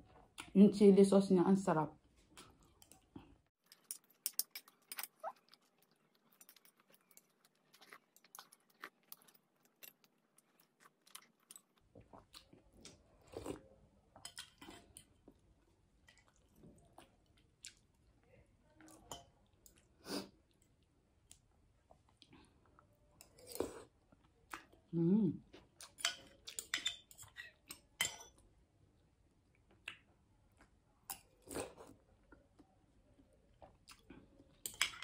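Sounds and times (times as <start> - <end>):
person chewing: 2.4 - 15.4, 16.1 - 18.0.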